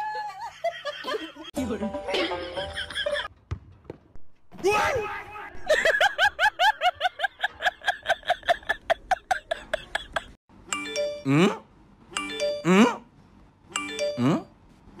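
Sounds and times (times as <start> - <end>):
chime jingle: 10.7 - 11.5.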